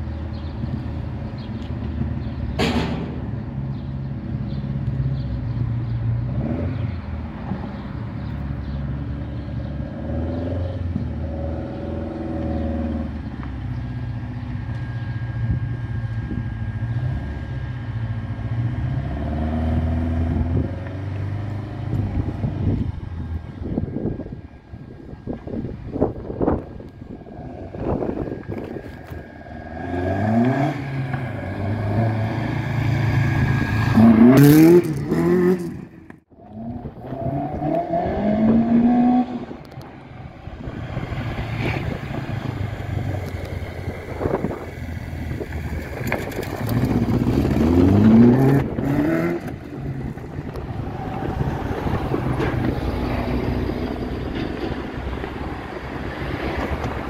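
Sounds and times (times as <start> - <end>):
race car accelerating: 27.2 - 57.0.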